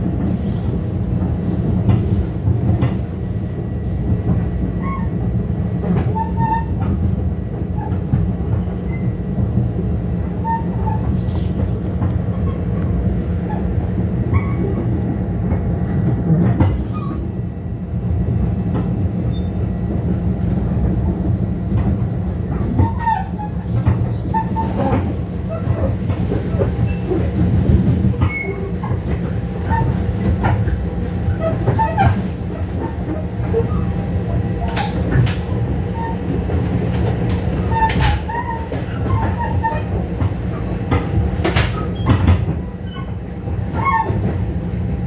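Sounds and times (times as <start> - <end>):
train wheels rumbling on rail: 0.0 - 45.0
track clicks and knocks: 34.4 - 42.7.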